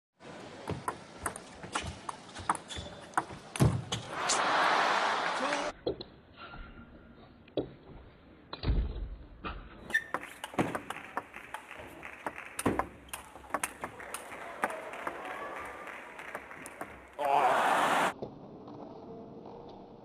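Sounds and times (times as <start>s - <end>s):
table tennis ball clicking: 10.0s - 14.0s.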